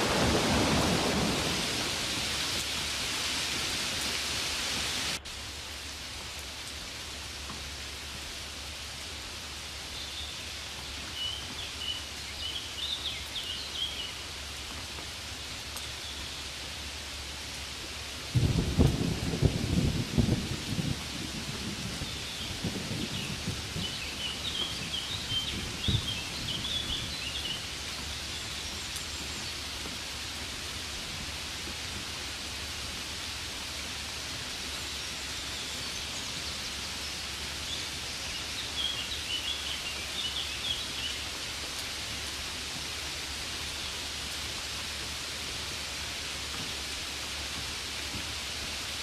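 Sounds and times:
rain hissing: 0.0 - 49.0
small birds chirping: 9.8 - 14.2, 21.9 - 30.5, 34.6 - 41.6.

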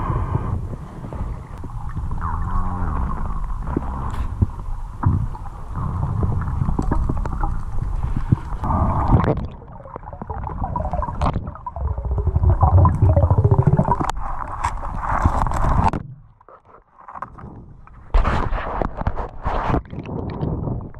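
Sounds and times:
underwater river current rumble: 0.0 - 16.3
bubbles gurgling and crackling: 0.0 - 20.9
underwater knocks: 1.6 - 14.1.

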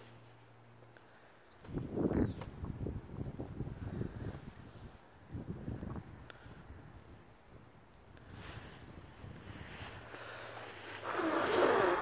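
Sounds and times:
wind buffeting microphone: 1.6 - 10.2.

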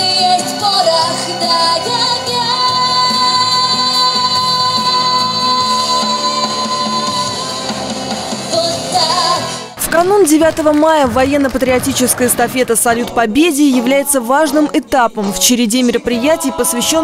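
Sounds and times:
backing music: 0.0 - 17.0.

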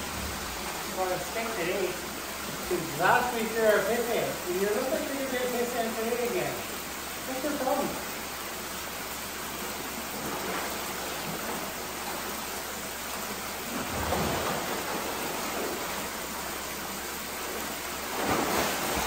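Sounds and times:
water pouring into a pool: 0.0 - 19.0
water splashes: 0.0 - 19.0.

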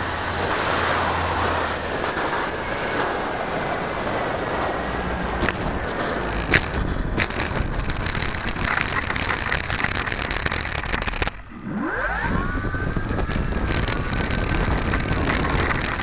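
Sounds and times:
wind noise: 0.0 - 16.0
model plane rolling through dry grass: 5.4 - 16.0
electric motor whine: 6.2 - 16.0.

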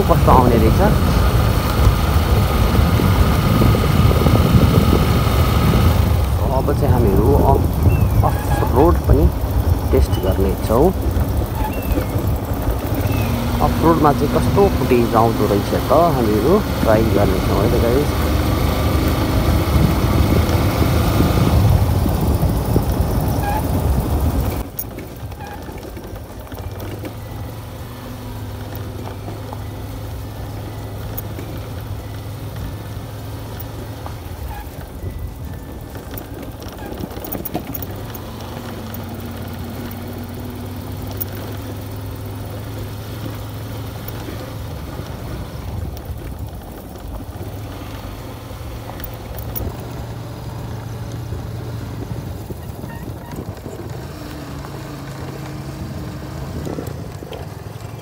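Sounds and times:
wind rushing over microphone: 0.0 - 14.4, 18.3 - 24.7
motorcycle engine drone: 0.0 - 58.0.

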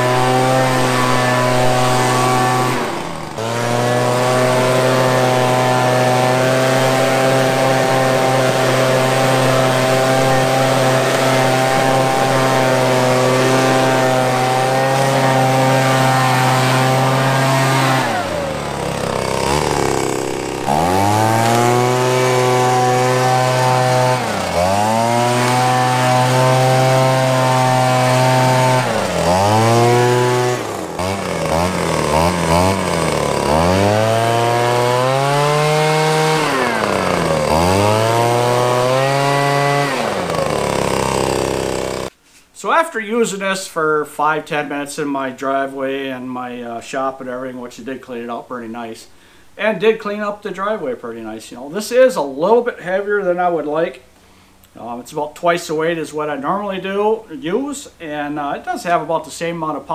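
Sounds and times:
leaf blower revving: 0.0 - 42.2.

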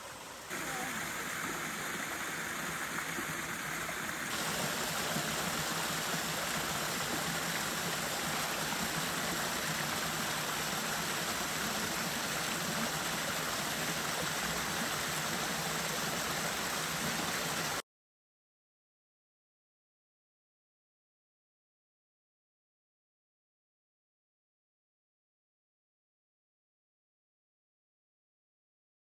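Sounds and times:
waterfall splashing into pool: 0.0 - 17.8.

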